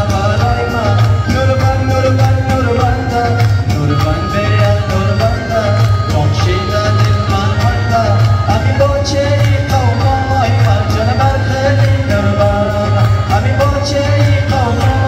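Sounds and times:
dance music with singing: 0:00.0 - 0:15.0.

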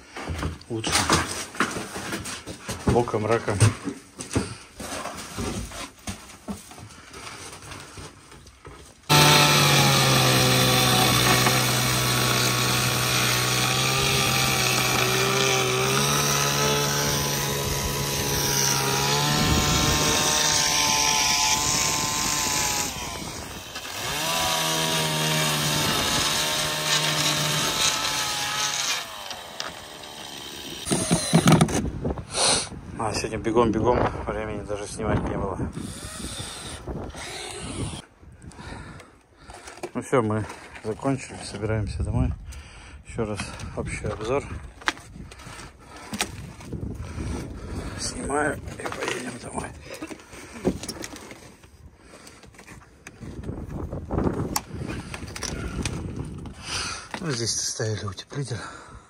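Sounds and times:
chainsaw cutting wood: 0:09.1 - 0:31.9, 0:35.8 - 0:38.0.

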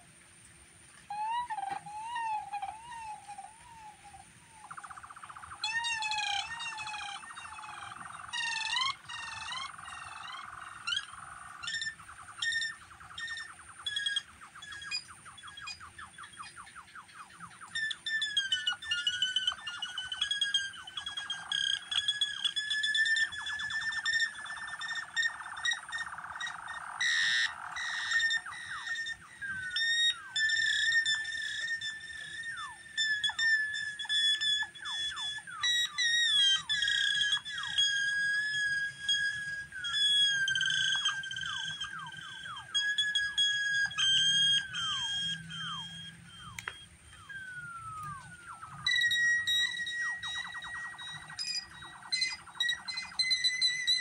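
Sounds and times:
synthesizer chirps and warbles: 0:04.6 - 0:54.0
steady thin high tone: 0:17.8 - 0:54.0.

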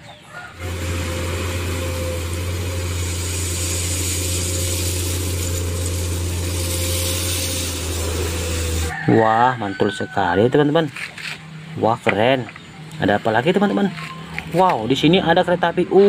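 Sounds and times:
excavator diesel engine drone: 0:00.0 - 0:16.0
hiss: 0:00.6 - 0:09.0.

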